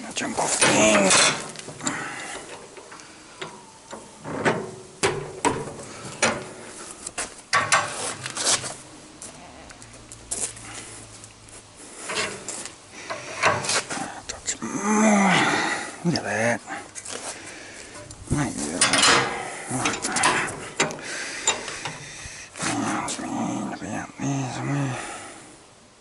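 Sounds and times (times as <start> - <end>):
steel rod clanking against vise: 18.8 - 22.0.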